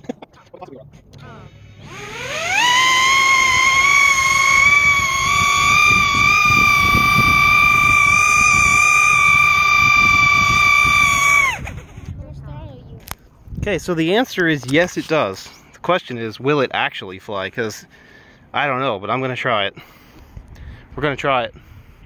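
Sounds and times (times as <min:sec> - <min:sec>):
quadcopter motors whining: 0:01.1 - 0:12.2.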